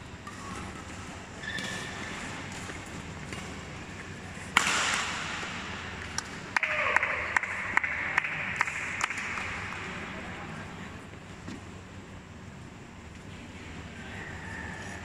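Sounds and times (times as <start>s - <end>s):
rackets striking shuttlecock: 4.5s - 6.8s
spectators clapping and cheering: 6.1s - 10.2s
people shouting: 6.6s - 7.4s.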